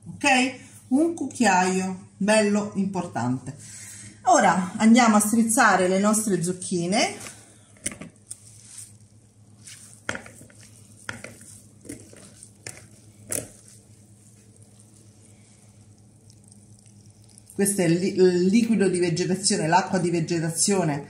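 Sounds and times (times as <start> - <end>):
squeezing grated vegetables in strainer: 8.2 - 18.0.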